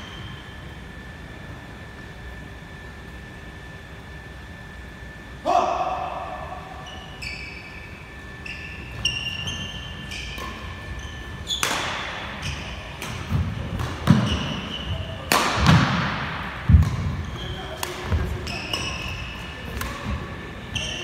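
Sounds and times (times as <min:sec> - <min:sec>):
shoes squeaking on floor: 0:06.8 - 0:13.0, 0:14.0 - 0:15.2, 0:17.0 - 0:19.6, 0:20.6 - 0:21.0
racquet striking shuttlecock: 0:11.5 - 0:19.0.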